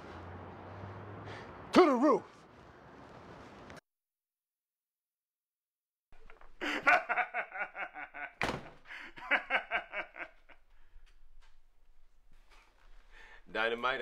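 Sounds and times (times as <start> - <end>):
hearty laughter: 6.3 - 10.9.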